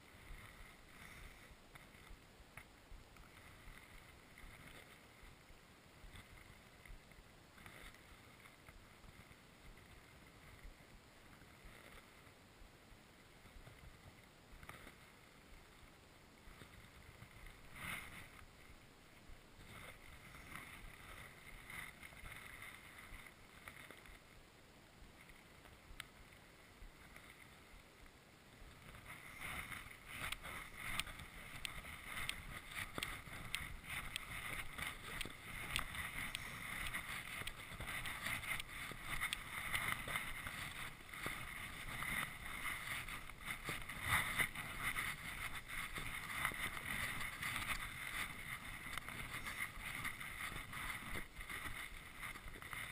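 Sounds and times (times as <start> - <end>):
sled scraping over snow: 0.0 - 12.4, 13.3 - 24.4, 25.2 - 52.9
small irregular clicks: 0.0 - 12.4, 13.4 - 24.4, 25.1 - 52.9.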